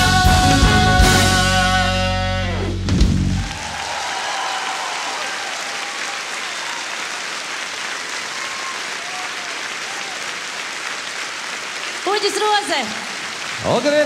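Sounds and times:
audience applauding: 3.4s - 14.0s.

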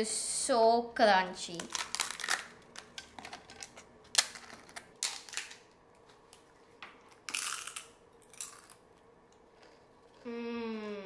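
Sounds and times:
papad cracking and crunching: 1.5s - 5.7s
chewing: 8.3s - 10.3s.

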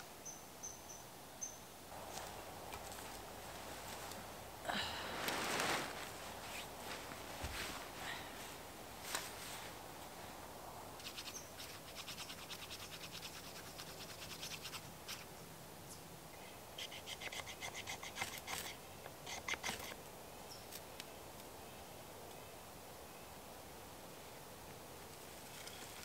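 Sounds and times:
quick scraping strokes: 11.0s - 15.3s.

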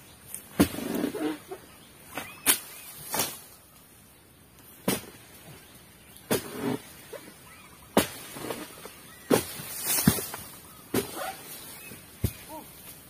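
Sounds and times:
chisel chopping palm stalks: 0.4s - 1.4s, 2.1s - 3.5s, 4.8s - 5.3s, 6.2s - 7.3s, 7.9s - 13.0s.

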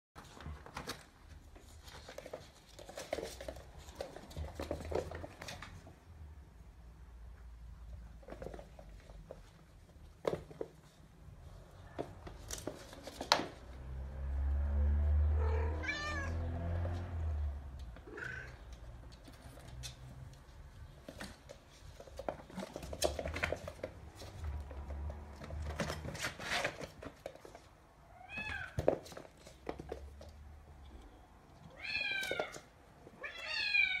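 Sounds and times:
kittens scrabbling on wooden floor: 0.2s - 6.0s, 7.7s - 15.0s, 15.8s - 30.9s.

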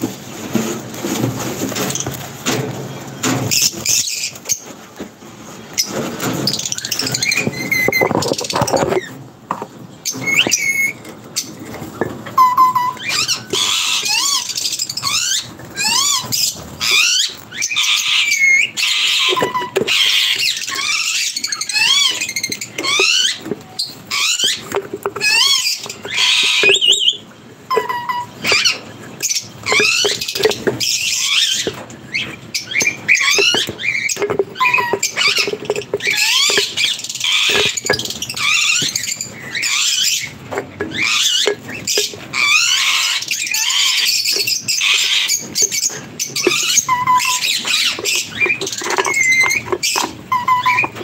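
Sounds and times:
lovebirds chirping and squeaking: 0.1s - 51.0s.

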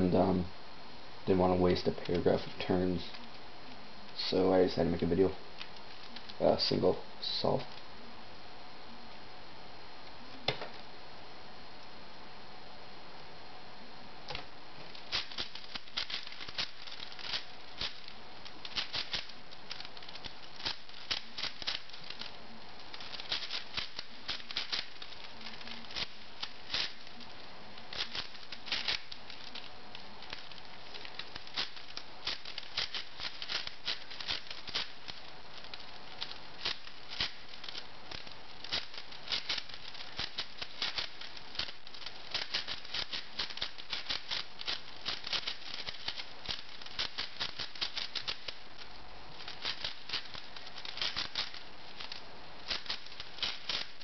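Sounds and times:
plastic puzzle clicking as turned: 15.1s - 22.3s, 22.9s - 27.1s, 27.9s - 48.6s, 49.4s - 54.0s.

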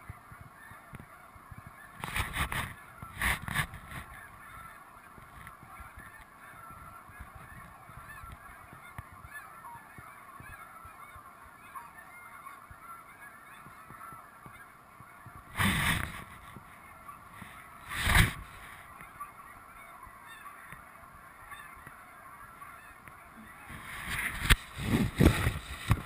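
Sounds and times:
geese honking: 0.0s - 26.0s
loud burst of noise: 15.5s - 16.3s.

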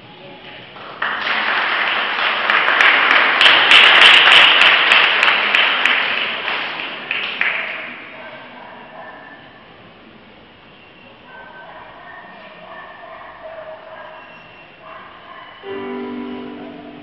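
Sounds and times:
audience applauding: 0.8s - 8.2s.

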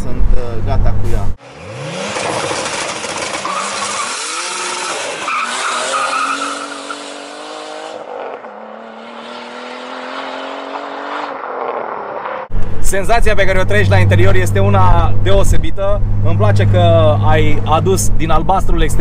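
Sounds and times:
car engine accelerating: 0.3s - 12.8s
tyre squeal: 2.1s - 9.5s.

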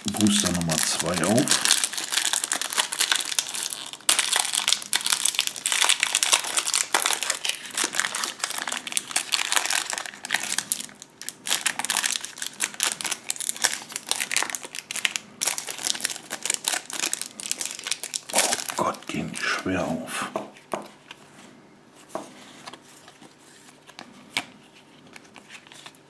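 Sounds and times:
foil wrapper crackling: 0.0s - 19.4s.

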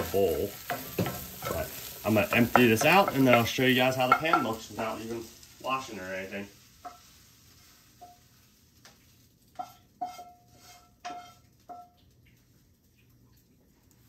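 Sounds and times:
utensil clinking on frying pan: 2.3s - 5.0s, 6.8s - 7.2s, 8.0s - 8.3s, 9.5s - 12.1s.

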